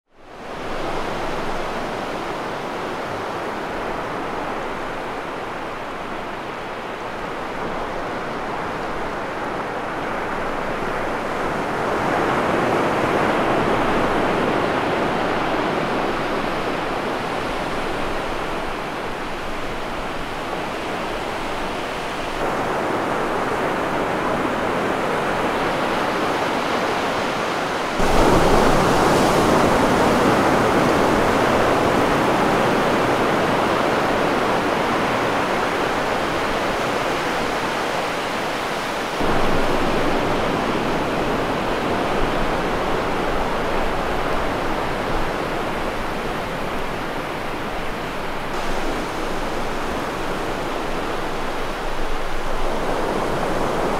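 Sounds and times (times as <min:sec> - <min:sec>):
ocean surf breaking on beach: 0:00.2 - 0:53.9.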